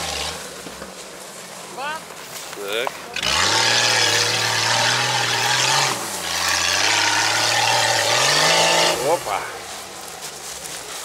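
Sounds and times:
off-road vehicle engine revving: 0:00.0 - 0:00.8, 0:03.0 - 0:10.1.

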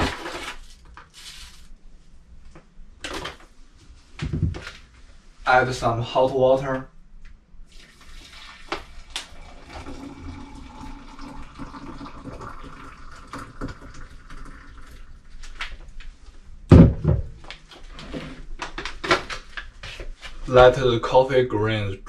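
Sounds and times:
water pouring into a mug: 0:07.7 - 0:15.3.

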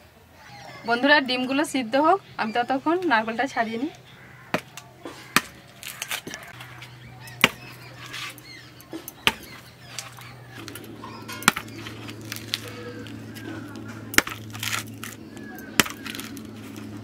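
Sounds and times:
blade hacking coconut husk: 0:04.4 - 0:17.0.

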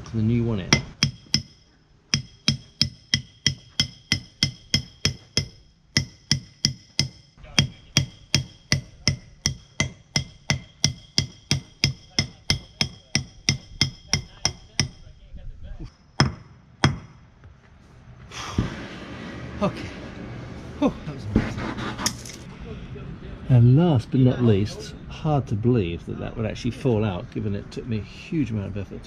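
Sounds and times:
hammer striking metal: 0:00.6 - 0:15.1, 0:15.9 - 0:17.2.

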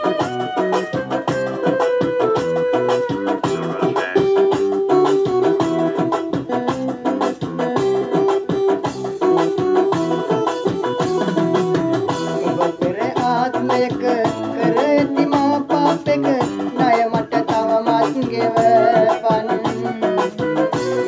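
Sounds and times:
plucked guitar: 0:00.0 - 0:21.0
man singing: 0:03.4 - 0:04.6, 0:12.3 - 0:20.4.

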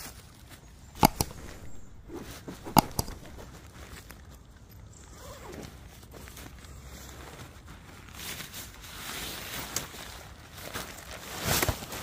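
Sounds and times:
faint rustling: 0:00.8 - 0:04.2
double mouse clicks: 0:01.0 - 0:03.4.

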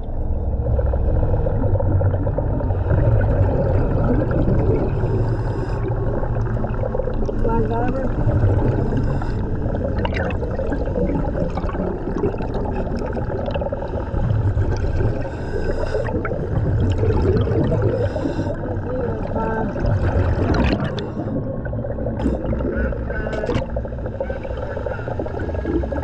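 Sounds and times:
exhaust bubbles gurgling: 0:00.0 - 0:26.0.

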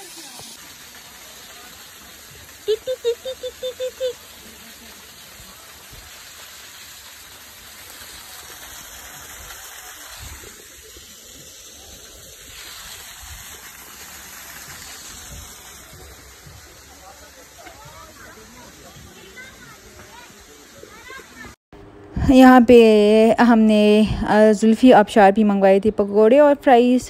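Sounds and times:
waterfall rushing: 0:00.0 - 0:21.6.

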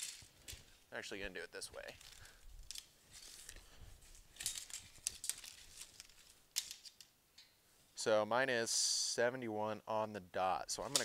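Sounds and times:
tape measure rustling and scraping: 0:00.0 - 0:00.8, 0:01.7 - 0:07.0, 0:10.8 - 0:11.0.

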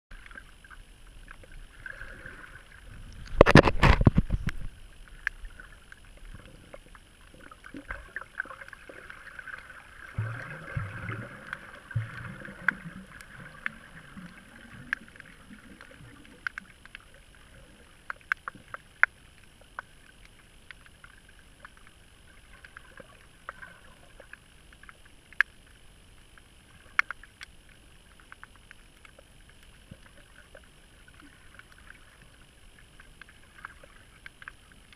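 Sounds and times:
sharp clicks and crackles: 0:02.7 - 0:34.9
underwater hiss: 0:04.2 - 0:18.8.

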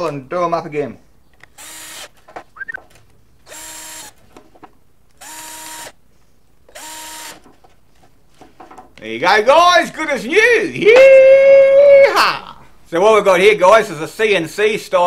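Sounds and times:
cordless drill driving screws: 0:01.5 - 0:02.2, 0:03.5 - 0:04.2, 0:05.2 - 0:06.0, 0:06.7 - 0:07.4.

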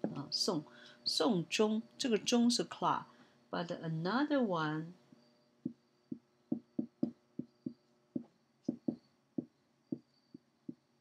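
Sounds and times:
marker tapping on whiteboard: 0:05.6 - 0:10.9.

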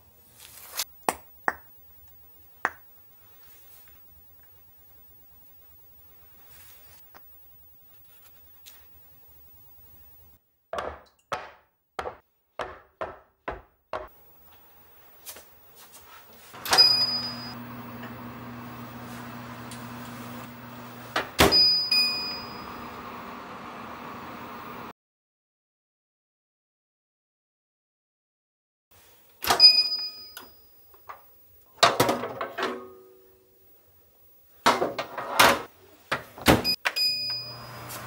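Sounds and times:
oven humming: 0:16.4 - 0:24.9, 0:37.0 - 0:38.0
short oven beep: 0:16.6 - 0:19.9, 0:20.5 - 0:24.3, 0:36.6 - 0:38.0
oven clunk: 0:16.6 - 0:24.9.

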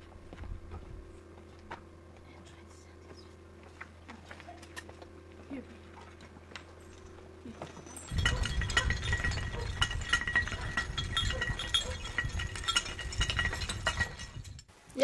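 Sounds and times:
sheep bells clinking: 0:06.6 - 0:14.7.

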